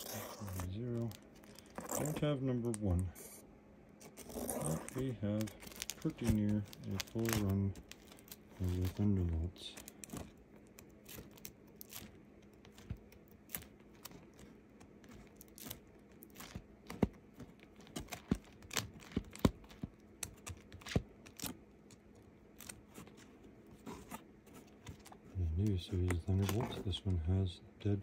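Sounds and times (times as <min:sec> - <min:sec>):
comic book pages flipping: 0:00.0 - 0:03.1, 0:04.0 - 0:27.2.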